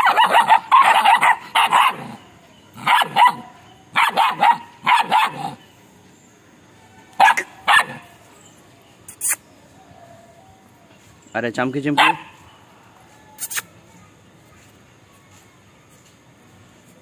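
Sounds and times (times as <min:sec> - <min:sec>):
puppies barking: 0:00.0 - 0:05.7, 0:07.1 - 0:08.4, 0:11.8 - 0:12.7.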